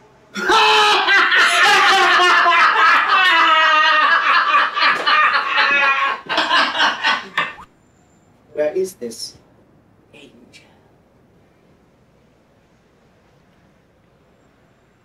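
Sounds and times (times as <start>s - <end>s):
men laughing loudly: 0.4s - 7.7s.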